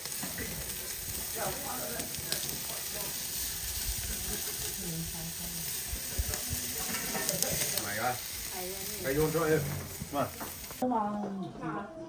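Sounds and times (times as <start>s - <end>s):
meat sizzling on a grill: 0.0s - 10.8s.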